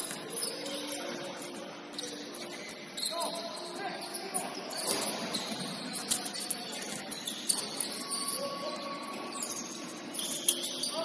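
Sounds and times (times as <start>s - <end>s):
sneakers squeaking on court: 1.9s - 8.4s.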